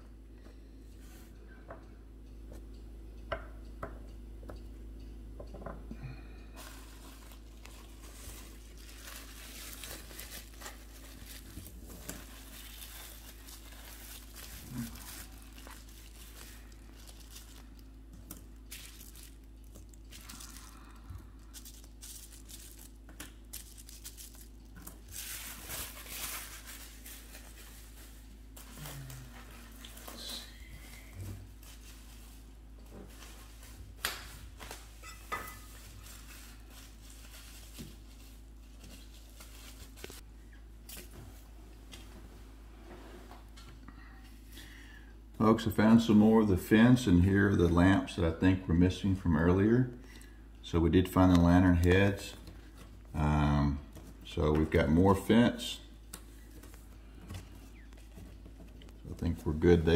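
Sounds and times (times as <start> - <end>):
bubble wrap crinkling: 6.6 - 41.5.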